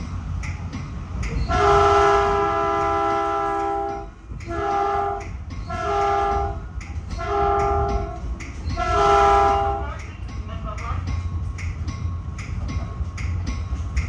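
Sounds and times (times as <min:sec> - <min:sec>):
train rumbling: 0:00.0 - 0:14.0
train air horn blasts: 0:01.5 - 0:06.6, 0:07.2 - 0:08.2, 0:08.8 - 0:09.8.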